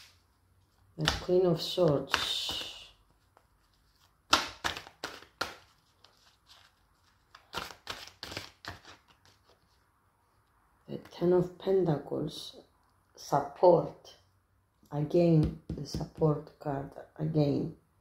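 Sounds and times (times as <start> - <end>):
cards being shuffled: 0.0 - 9.8.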